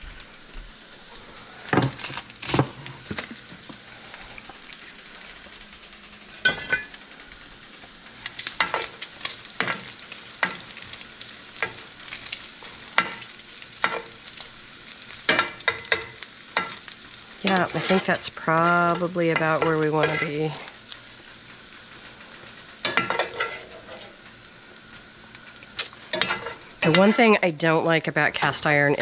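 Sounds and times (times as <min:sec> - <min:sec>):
meat sizzling in a skillet: 0:00.0 - 0:29.0
metal spoon scraping a pan: 0:13.0 - 0:14.2, 0:17.4 - 0:18.3, 0:18.9 - 0:20.5, 0:22.8 - 0:24.2, 0:26.1 - 0:27.4.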